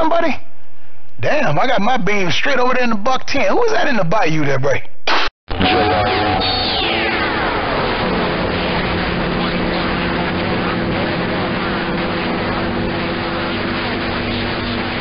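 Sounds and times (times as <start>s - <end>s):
radio static and garbled noise: 5.1s - 15.0s.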